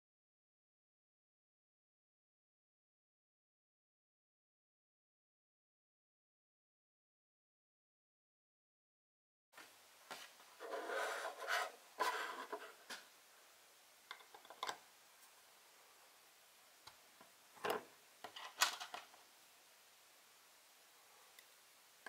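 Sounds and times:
plastic parts rubbing and scraping: 10.6 - 13.0.

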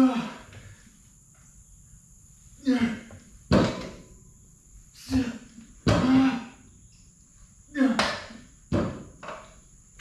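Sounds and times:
man breathing forcefully and grunting: 0.0 - 0.7, 2.6 - 3.1, 5.0 - 6.6
exercise machine knock: 3.5 - 4.0, 5.1 - 6.4, 7.9 - 9.4.

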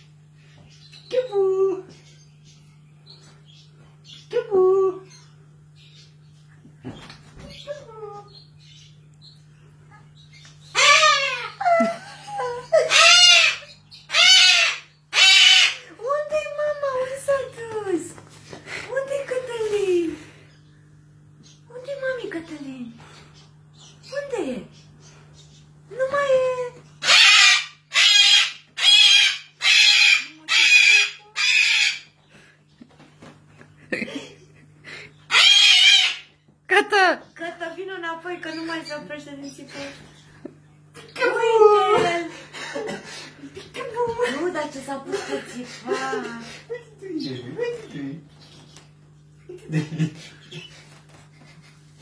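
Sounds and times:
cockatoo squawks: 10.7 - 11.6, 12.7 - 15.9, 27.0 - 32.2, 35.3 - 36.4
cockatoo screeching: 10.7 - 11.7, 12.7 - 15.9, 27.0 - 32.2, 35.3 - 36.4.

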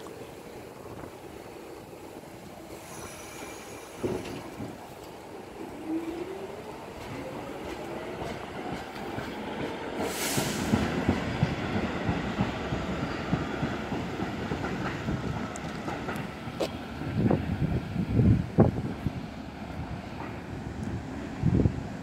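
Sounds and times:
train wheels clattering on track: 2.7 - 5.3, 6.1 - 17.5, 20.0 - 21.0
brief hiss: 10.0 - 10.9.

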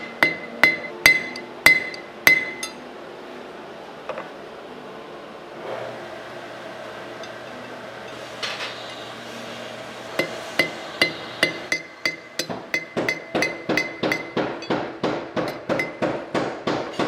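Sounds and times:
hammer striking metal on anvil: 0.0 - 2.8, 10.2 - 17.0
low steady hum: 0.0 - 8.2, 8.9 - 16.2.

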